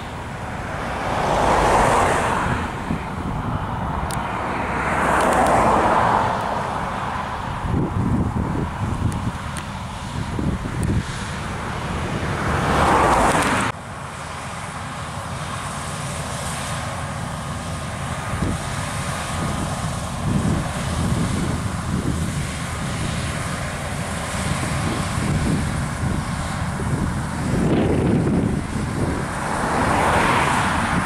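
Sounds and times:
loud rushing sound: 0.0 - 13.8
combine harvester rumbling: 0.0 - 31.0.

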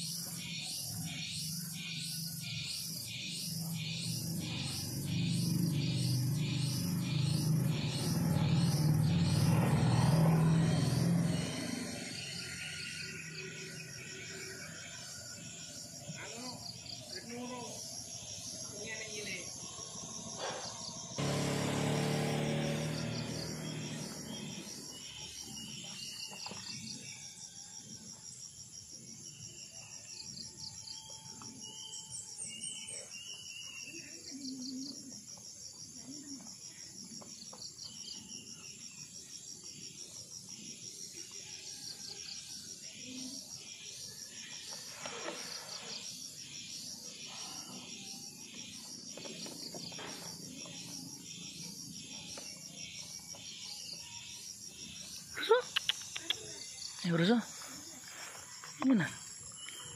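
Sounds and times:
short high insect chirps: 0.0 - 14.8, 17.2 - 27.0, 44.6 - 59.9
insects trilling: 0.0 - 59.9.

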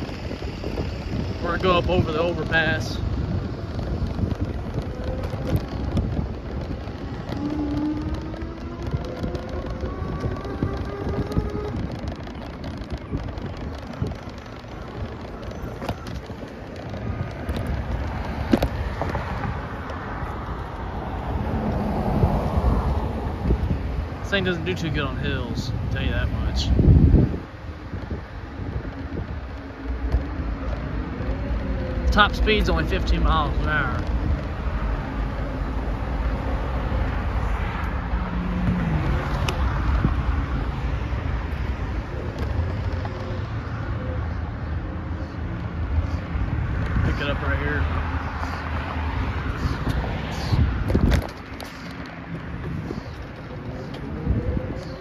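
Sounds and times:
knocks and rattles over bumps: 0.0 - 55.0
road traffic noise: 0.0 - 55.0
wind buffeting microphone: 0.0 - 55.0.

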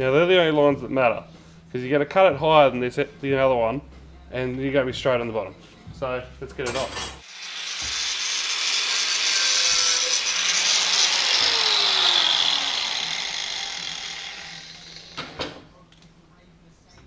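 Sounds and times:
angle grinder cutting steel: 7.2 - 15.4.

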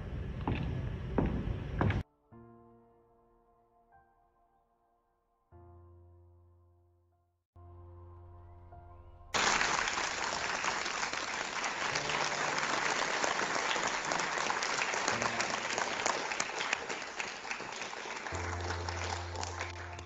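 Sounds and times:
audience applauding: 9.4 - 20.0.

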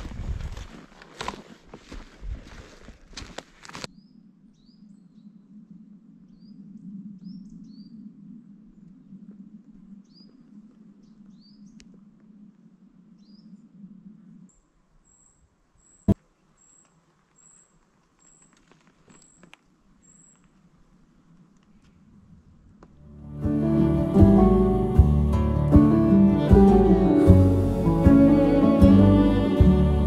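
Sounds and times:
footsteps crunching on forest floor: 0.0 - 3.9, 17.2 - 19.6
small birds chirping: 3.9 - 5.5, 10.0 - 11.9, 13.2 - 13.7, 14.4 - 20.6.

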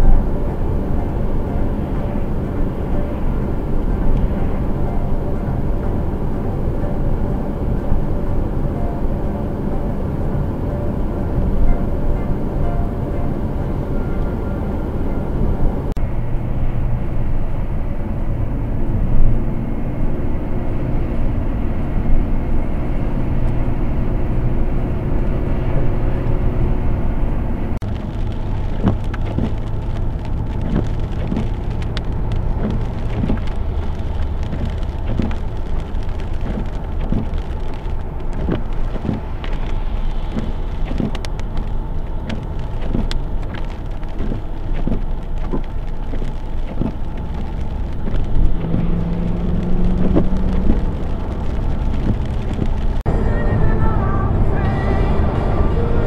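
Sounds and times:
car engine and tyre hum: 0.0 - 56.0
wet-road driving noise: 0.0 - 56.0
raindrops ticking on windshield: 27.8 - 56.0.

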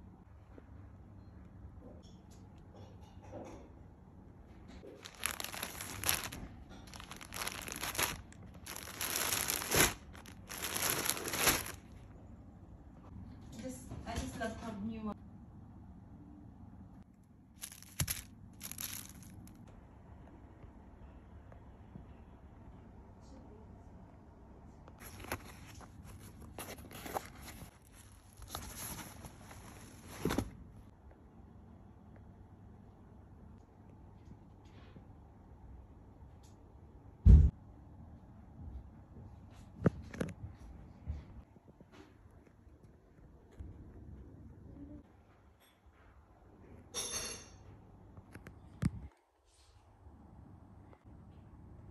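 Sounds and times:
plastic bags crinkling: 4.9 - 12.0, 17.6 - 19.6
nylon backpack rustling: 5.0 - 11.8, 17.6 - 19.3.

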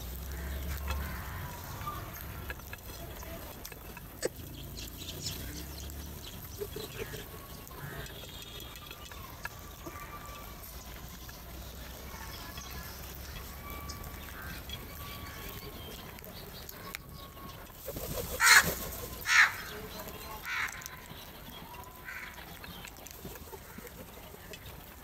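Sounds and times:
crows cawing: 0.2 - 2.5, 7.8 - 8.2, 13.3 - 14.7, 18.4 - 19.8, 20.4 - 21.1, 21.9 - 22.4.

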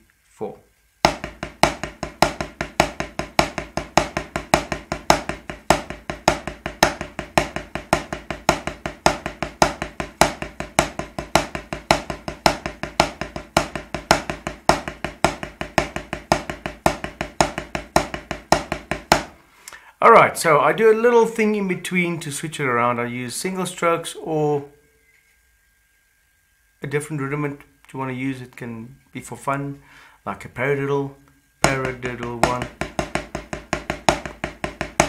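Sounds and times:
drumsticks tapping practice pad: 1.0 - 19.4, 31.6 - 35.0.

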